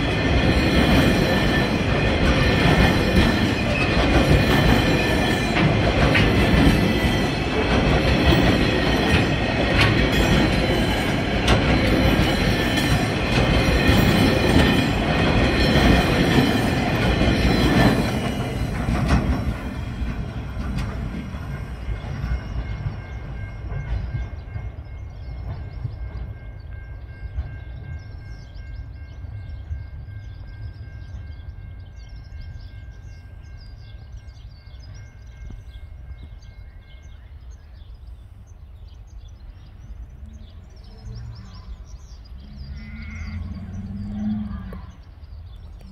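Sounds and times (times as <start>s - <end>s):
train wheels clattering over joints: 0.0s - 28.8s.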